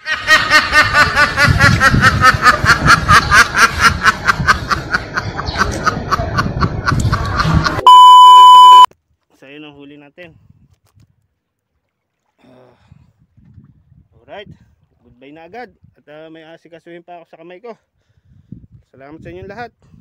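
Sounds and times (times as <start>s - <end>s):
ducks quacking: 0.1s - 7.8s
steady test tone beep: 7.8s - 8.9s.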